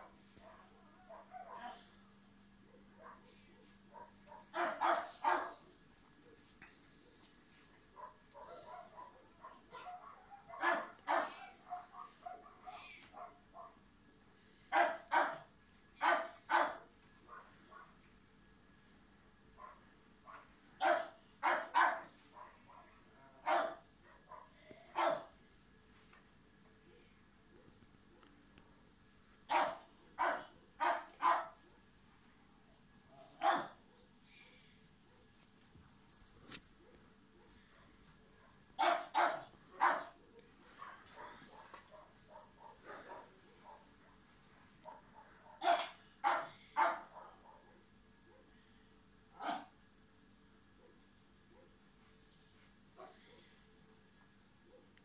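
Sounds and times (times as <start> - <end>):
small dog barking: 0.0 - 1.9, 2.7 - 5.7, 8.0 - 13.8, 14.7 - 18.0, 19.6 - 25.4, 29.5 - 31.8, 33.1 - 34.1, 38.4 - 44.2, 44.8 - 48.5, 49.4 - 49.7
dog yipping: 4.6 - 5.6, 8.4 - 12.6, 45.5 - 47.0.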